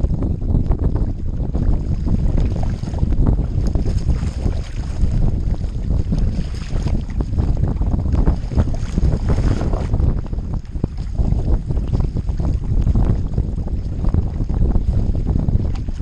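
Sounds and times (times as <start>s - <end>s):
water slapping hull: 0.0s - 16.0s
wind buffeting microphone: 0.0s - 16.0s
paddle strokes splashing: 1.6s - 15.0s.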